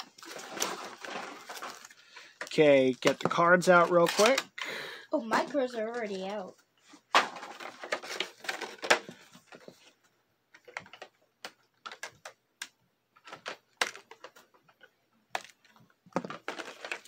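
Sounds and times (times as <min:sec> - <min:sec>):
plastic clicks and crackles: 0:10.5 - 0:17.0.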